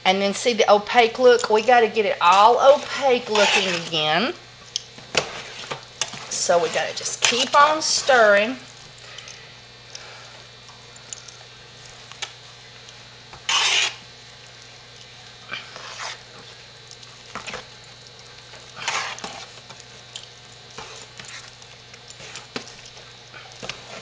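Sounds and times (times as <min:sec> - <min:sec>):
spoon scraping against pot: 0:02.8 - 0:04.0, 0:13.5 - 0:14.0, 0:15.7 - 0:16.2, 0:18.8 - 0:19.6.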